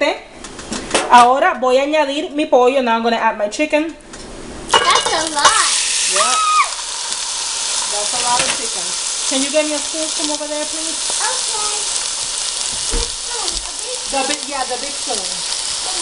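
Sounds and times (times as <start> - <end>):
chicken sizzling in hot oil: 4.7 - 16.0.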